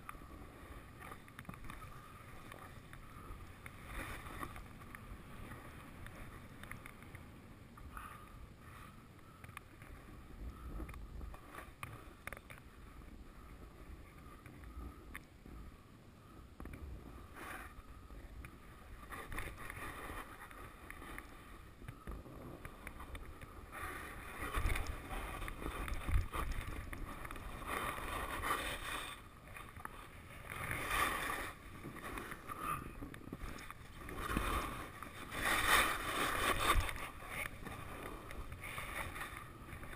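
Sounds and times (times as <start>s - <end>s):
skis swishing and scraping on snow: 23.0s - 39.9s.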